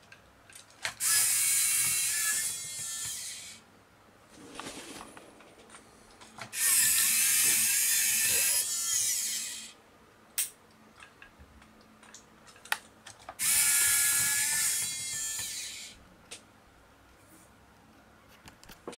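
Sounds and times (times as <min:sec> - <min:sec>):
small gear motor whirring: 0:01.0 - 0:03.6, 0:06.5 - 0:09.7, 0:13.4 - 0:16.0.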